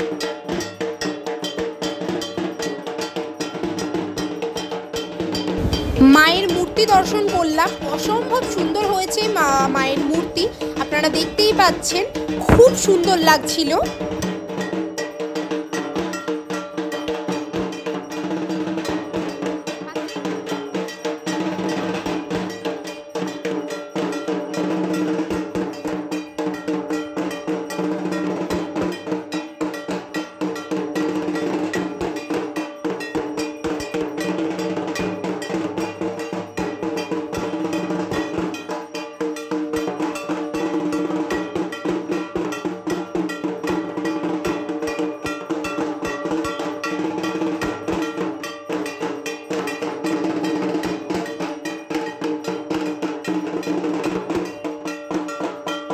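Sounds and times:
gong struck rapidly: 5.4 - 14.5.

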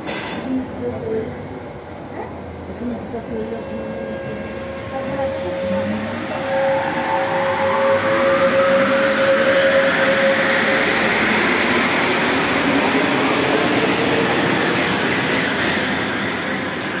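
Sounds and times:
metro train running past: 0.0 - 17.0.

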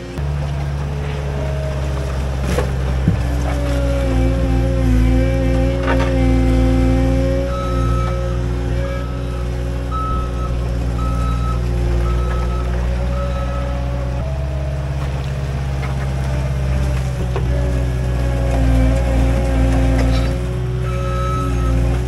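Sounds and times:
diesel engine under load: 0.0 - 22.0
reverse alarm beeping: 7.5 - 8.2, 8.9 - 14.4.

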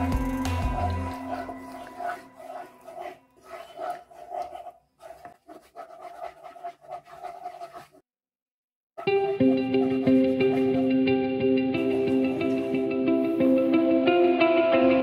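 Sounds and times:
wooden spatula stirring sauce: 0.0 - 8.0, 9.0 - 11.0, 11.8 - 12.8.

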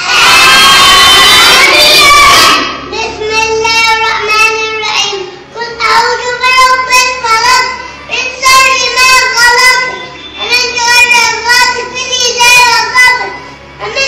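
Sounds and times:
boy chanting a prayer: 2.9 - 14.0.

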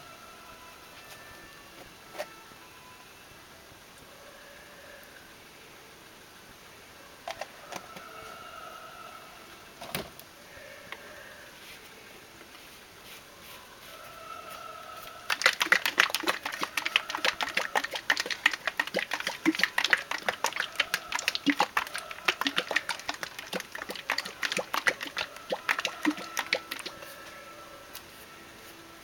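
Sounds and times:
paint sloshing in shaken plastic bottle: 15.3 - 27.1.

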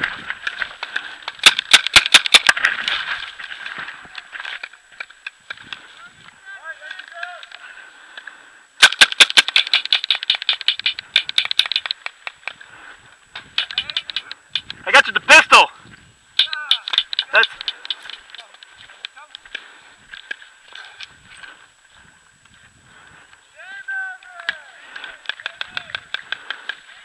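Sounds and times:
paintball markers popping: 8.8 - 12.6, 13.4 - 14.8, 16.4 - 18.7, 24.3 - 26.8.

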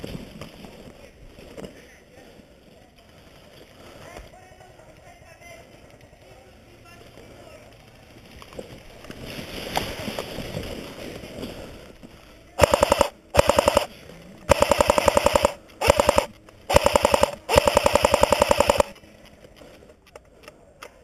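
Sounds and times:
airsoft rifle firing bursts: 12.6 - 13.9, 14.5 - 19.0.

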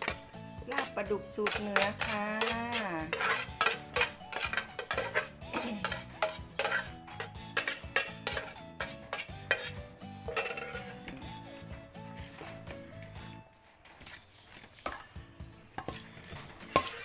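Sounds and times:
metal pot clinking against bowl: 0.0 - 11.2, 15.8 - 17.0.

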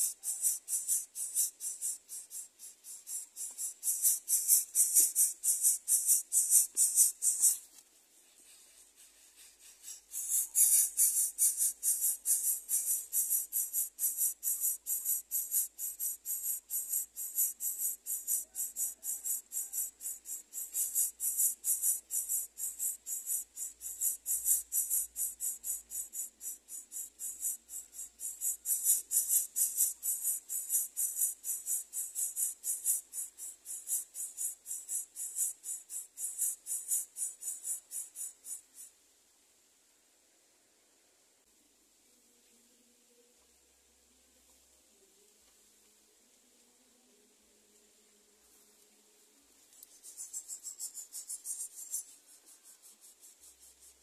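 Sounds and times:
insects chirping: 0.0 - 7.7, 9.8 - 38.9, 49.8 - 54.0.

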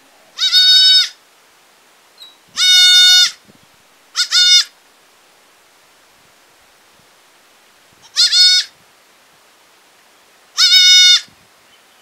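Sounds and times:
goat kid bleating: 0.3 - 1.2, 2.5 - 3.4, 4.2 - 4.7, 8.0 - 8.8, 10.6 - 11.3.

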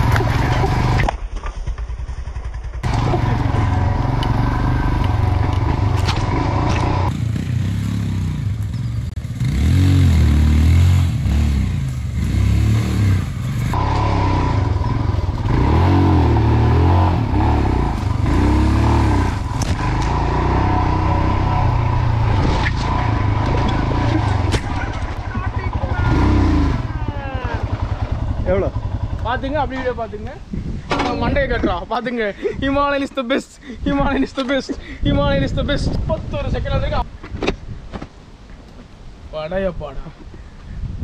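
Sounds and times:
motorcycle engine revving: 0.0 - 29.9.

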